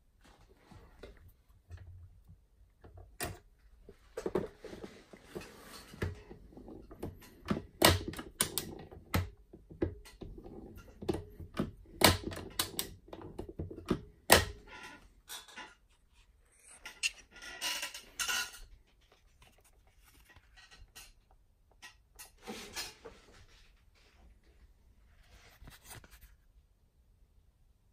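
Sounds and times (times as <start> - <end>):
metal rubbing: 16.0 - 18.6.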